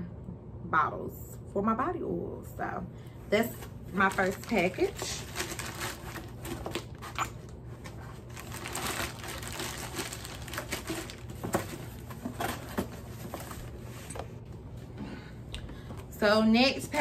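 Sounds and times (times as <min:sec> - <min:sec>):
plastic packaging crinkling: 0:03.9 - 0:13.8.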